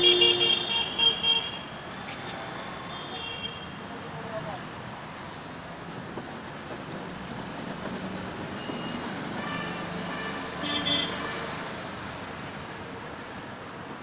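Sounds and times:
vehicle horn double toot: 0.0 - 1.6
road traffic noise: 0.0 - 14.0.

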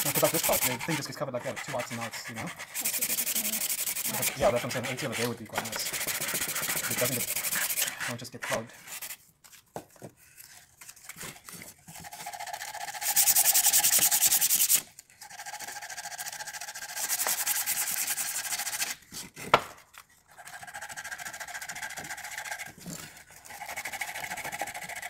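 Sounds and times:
sandpaper rubbing on wood: 0.0 - 9.2, 12.2 - 14.8, 15.8 - 19.0, 23.4 - 25.0.

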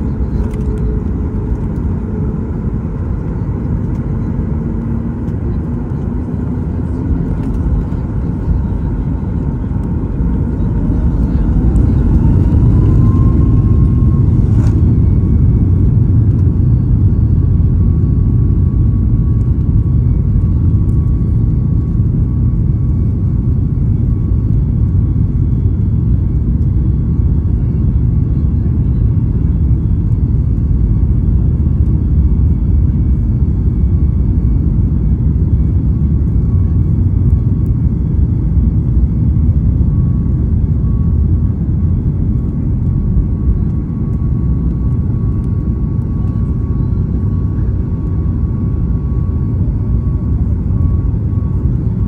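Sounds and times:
loud jet engine roar: 0.0 - 24.4.

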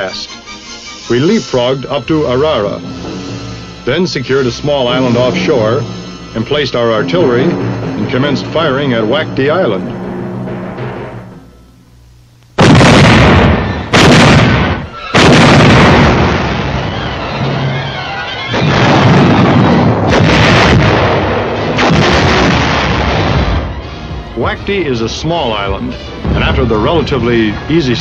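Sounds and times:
rumble of gunfire: 12.6 - 17.8, 18.5 - 23.8
heavy artillery blasts: 12.6 - 24.6, 25.5 - 28.0.

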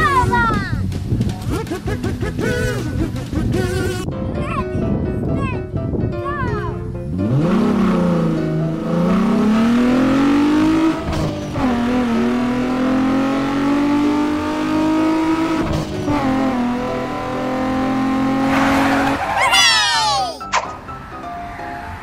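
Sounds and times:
car engine revving: 7.0 - 19.4.

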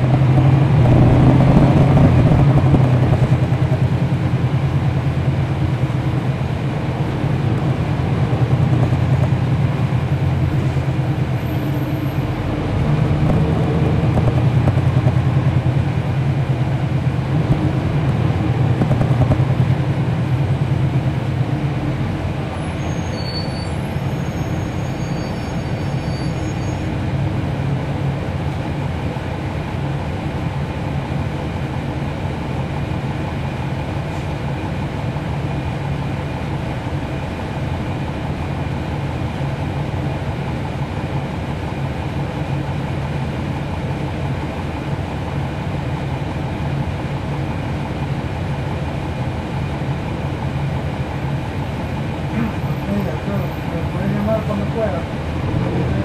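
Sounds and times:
bus diesel engine running: 0.0 - 56.0.

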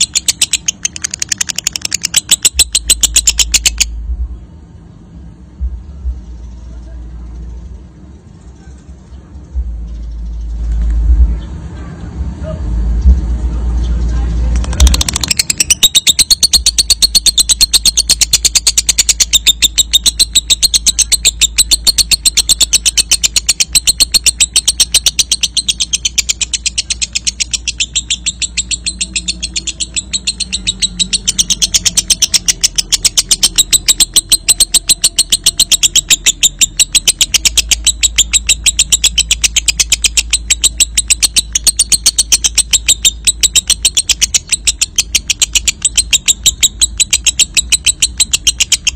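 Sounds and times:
lovebird chattering trill: 0.0 - 4.0, 14.6 - 48.9.

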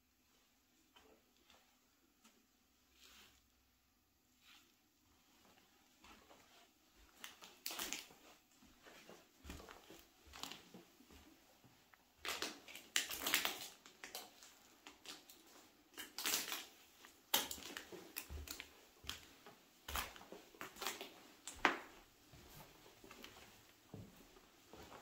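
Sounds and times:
footsteps crunching over debris: 12.2 - 25.0.

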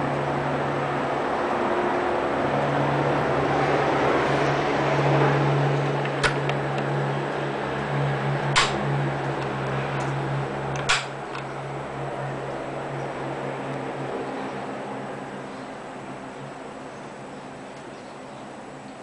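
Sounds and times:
desk fan motor hum and air: 0.0 - 19.0
fan switch clicks: 6.0 - 6.9, 8.4 - 11.5.

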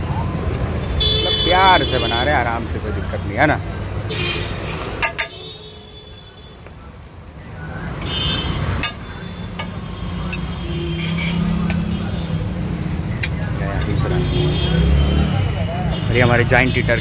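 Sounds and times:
street traffic rumble: 0.0 - 17.0
metal tongs clinking on griddle: 4.7 - 5.4, 8.8 - 9.7.

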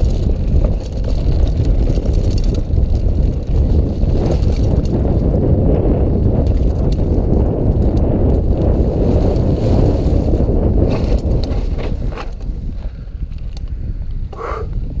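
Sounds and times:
bike clicks and rattles: 0.0 - 5.3, 10.8 - 13.7
wind rushing over microphone: 0.0 - 15.0
thin high squeal: 10.9 - 12.2.

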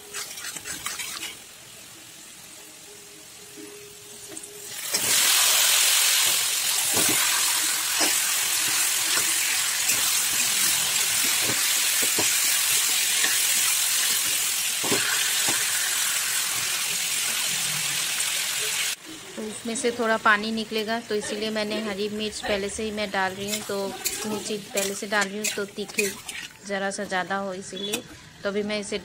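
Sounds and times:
metal spatula scraping pan: 0.0 - 1.4, 6.9 - 15.8, 23.3 - 26.6
chicken sizzling in hot oil: 0.0 - 19.0, 23.0 - 26.6.

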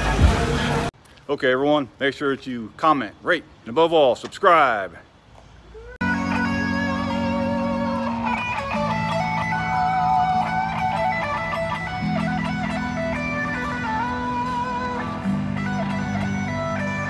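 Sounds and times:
electric guitar melody: 6.0 - 17.0.

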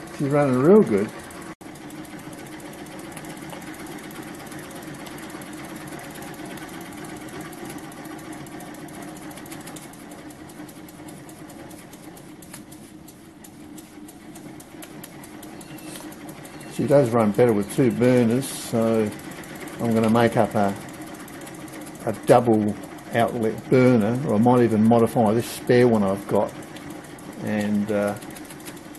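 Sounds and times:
steam engine ticking: 0.0 - 28.9.

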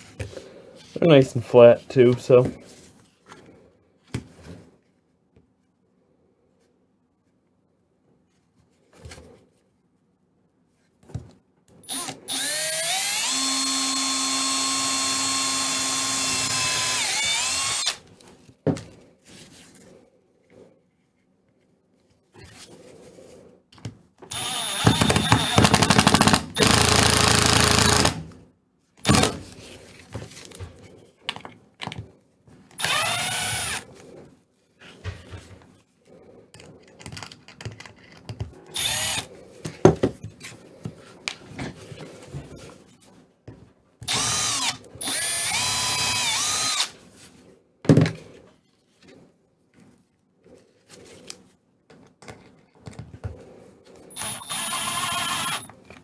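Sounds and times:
cordless power tool spinning: 11.9 - 18.0, 24.3 - 28.2, 32.8 - 33.8, 38.7 - 39.3, 44.0 - 47.0, 54.1 - 55.7.

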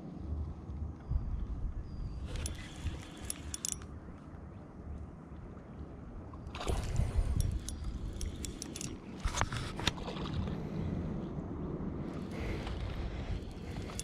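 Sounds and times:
water sloshing against boat hull: 6.3 - 10.6.

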